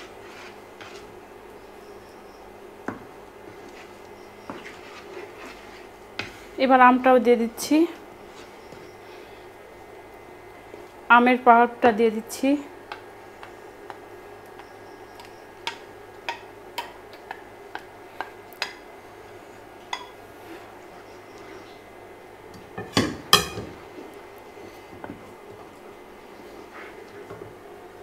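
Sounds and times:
wooden spatula scraping a bowl: 0.0s - 1.2s, 3.5s - 6.6s, 8.2s - 9.0s.

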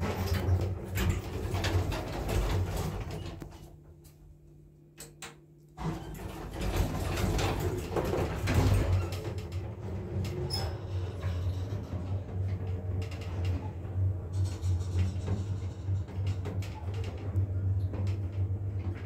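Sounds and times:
lift sliding doors running: 5.8s - 19.0s.

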